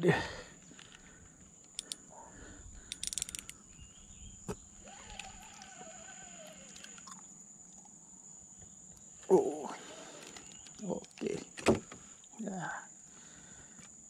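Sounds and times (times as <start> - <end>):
insects chirring: 0.0 - 14.0
faint clicks: 0.7 - 2.0.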